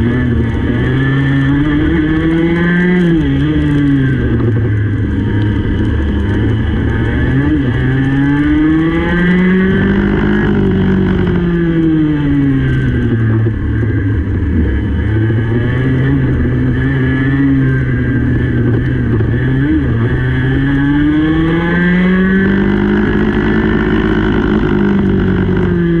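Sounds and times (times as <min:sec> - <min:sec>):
kart engine revving: 0:00.0 - 0:26.0.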